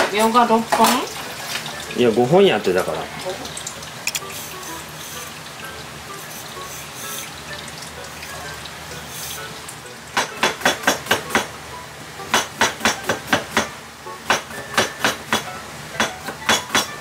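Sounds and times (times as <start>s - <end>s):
tap water running into sink: 0.6s - 8.8s
knife chopping on cutting board: 12.3s - 13.7s, 14.3s - 17.0s.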